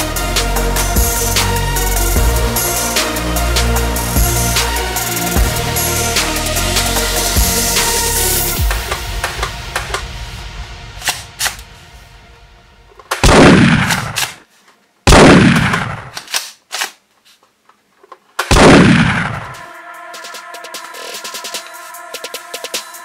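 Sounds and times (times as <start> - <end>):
shotgun blasts: 13.2 - 14.3, 15.1 - 16.1, 18.5 - 19.4
toy shotgun plastic clicks: 16.1 - 17.0.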